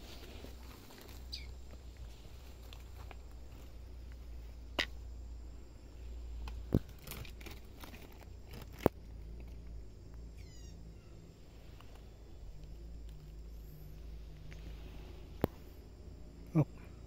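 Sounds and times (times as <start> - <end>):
rustling in leaf litter: 0.0 - 3.8, 6.8 - 9.0
high chirping call: 1.2 - 1.6, 10.3 - 11.2.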